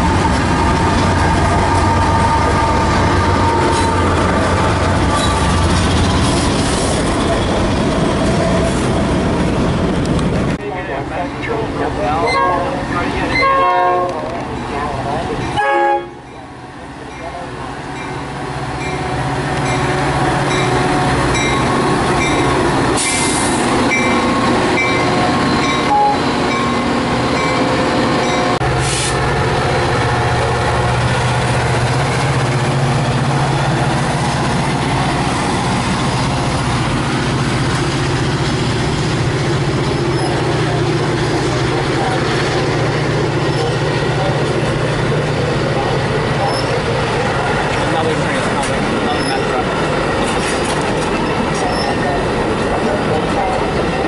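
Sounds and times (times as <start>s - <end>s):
train wheels on rails: 0.0s - 15.6s, 16.4s - 54.0s
locomotive engine hum: 0.0s - 54.0s
crossing bell dinging: 14.5s - 22.6s, 23.9s - 28.6s.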